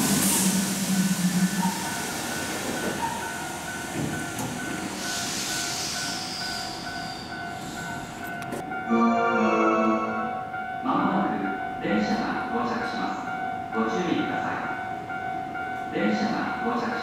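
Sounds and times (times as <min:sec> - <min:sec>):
electric train running: 0:00.0 - 0:08.5
air hiss: 0:04.8 - 0:06.6.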